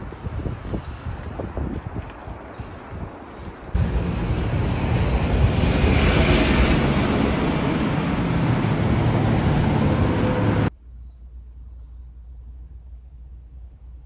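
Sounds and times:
wind buffeting microphone: 0.0 - 10.7
car driving past: 3.8 - 10.7.

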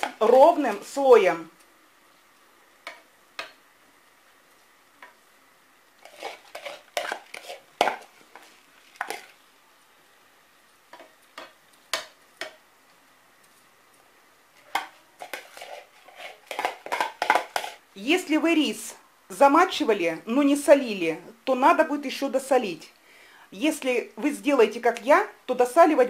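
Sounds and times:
metal spoon scraping frying pan: 6.0 - 9.4, 14.8 - 17.8.

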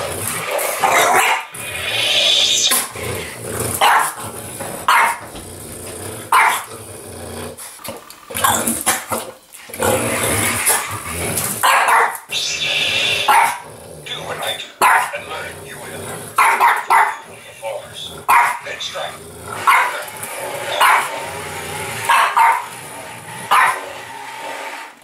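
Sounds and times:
dog growling: 0.0 - 24.3
small dog barking: 3.8 - 4.2, 4.9 - 5.2, 6.3 - 6.6, 11.6 - 12.3, 13.3 - 13.6, 14.8 - 15.2, 16.4 - 17.2, 18.3 - 18.6, 19.6 - 20.0, 20.8 - 21.1, 22.0 - 22.7, 23.5 - 23.8.

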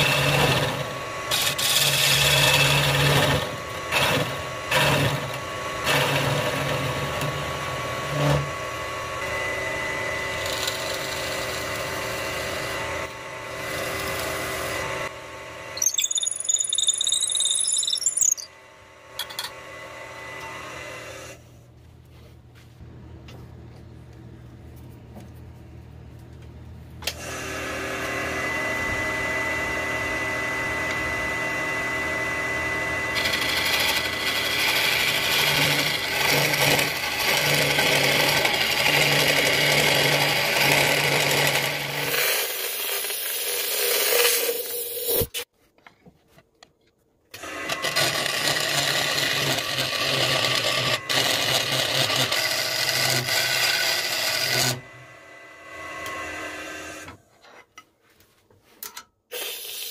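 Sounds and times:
wood lathe motor humming: 0.0 - 7.0, 13.6 - 14.9, 31.9 - 42.2, 47.8 - 55.3
high wavering squeal: 15.8 - 18.5
tool scraping spinning wood: 33.2 - 45.4.

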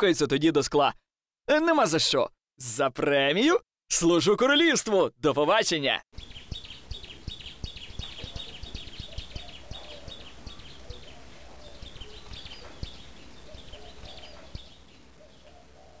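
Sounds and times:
soft outdoor ambience: 1.5 - 16.0
birds chirping and twittering: 6.2 - 16.0.

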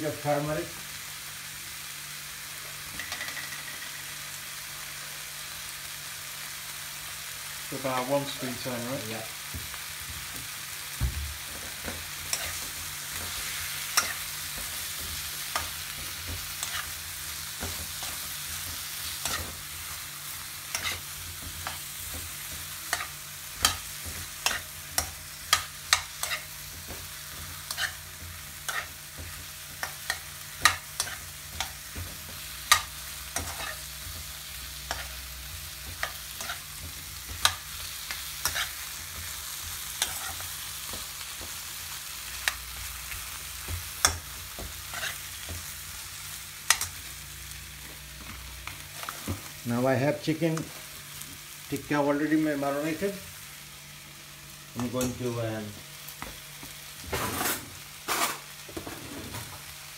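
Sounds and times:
mushrooms sizzling in a wok: 0.0 - 59.9
metal spatula scraping a pan: 12.2 - 17.0, 20.7 - 22.1, 27.6 - 31.9, 32.7 - 35.2, 35.9 - 38.9, 39.9 - 41.0, 44.8 - 45.6, 57.1 - 59.4.

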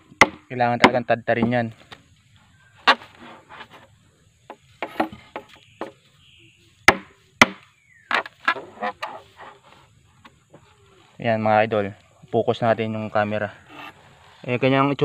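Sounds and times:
machete chopping bamboo: 0.0 - 1.6, 4.8 - 6.0, 6.8 - 9.1.

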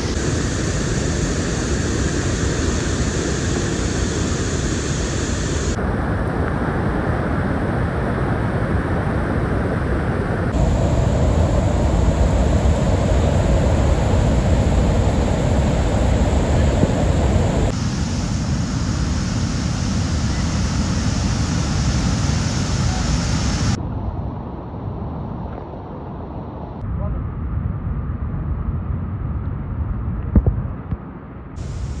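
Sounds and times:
waterfall roar: 0.0 - 23.8.

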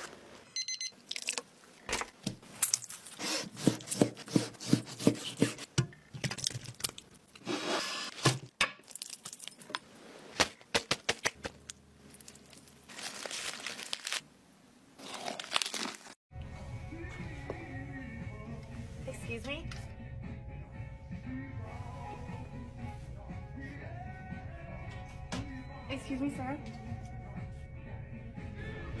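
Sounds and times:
crinkling and tearing: 1.1 - 4.0, 8.8 - 14.3, 15.0 - 16.2
knife chopping on cutting board: 3.2 - 5.8
crunchy bite into lettuce: 15.0 - 16.2.

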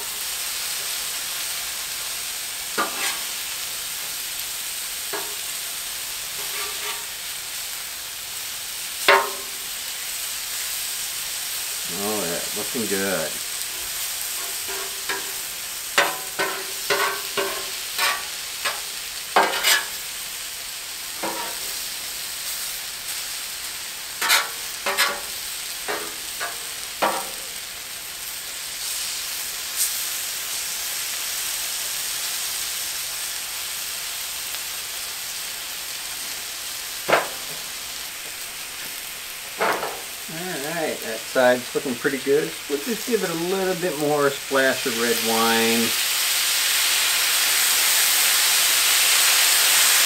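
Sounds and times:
meat sizzling on a griddle: 0.0 - 50.0
metal spatula tapping griddle: 2.8 - 3.2, 5.1 - 5.4, 9.1 - 9.6, 14.4 - 15.4, 16.0 - 20.0, 21.2 - 21.6, 24.2 - 25.3, 25.9 - 27.4, 37.1 - 37.6.

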